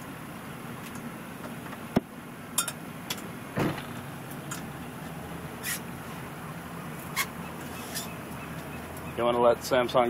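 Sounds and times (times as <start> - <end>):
boat engine idling: 0.0 - 10.0
soft thump: 3.6 - 4.0.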